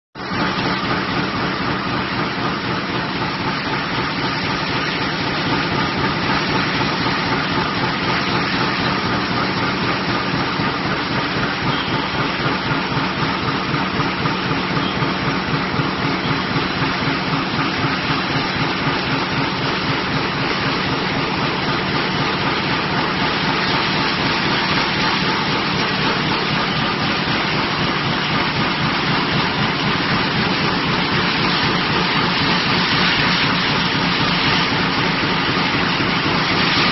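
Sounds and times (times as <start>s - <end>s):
fast mechanical rattle: 0.2s - 36.9s
slitting machine running: 0.2s - 36.9s.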